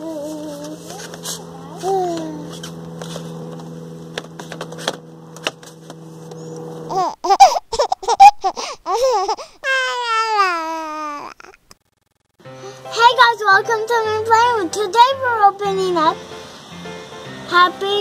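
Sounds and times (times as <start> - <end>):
baby babbling: 0.0 - 2.6, 6.9 - 11.6
steady low hum: 0.0 - 9.6.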